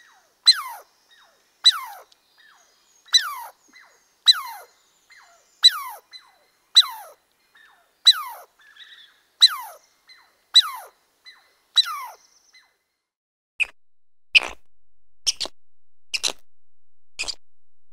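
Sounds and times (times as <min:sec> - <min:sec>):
squirrel alarm calls: 0:00.0 - 0:12.7.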